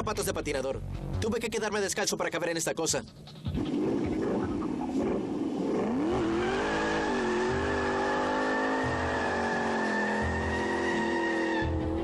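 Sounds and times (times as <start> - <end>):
car engine revving: 3.6 - 12.0.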